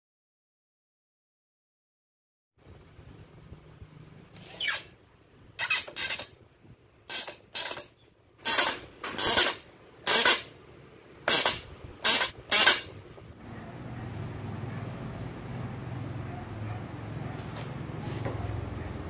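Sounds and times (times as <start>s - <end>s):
screw driven into wood: 5.6s - 6.4s, 7.1s - 10.5s, 11.3s - 13.0s.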